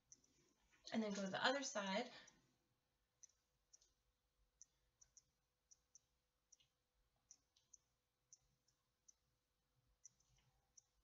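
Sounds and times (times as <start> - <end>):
faint small clicks: 3.2 - 4.0, 4.6 - 9.3.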